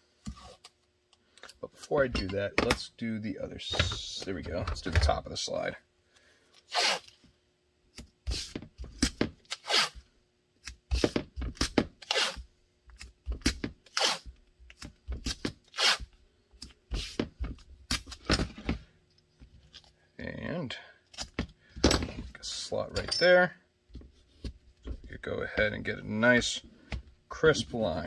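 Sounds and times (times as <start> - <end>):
tape ripping off roll: 6.7 - 7.2, 8.3 - 10.0, 10.9 - 12.4, 13.4 - 14.3, 15.2 - 16.1.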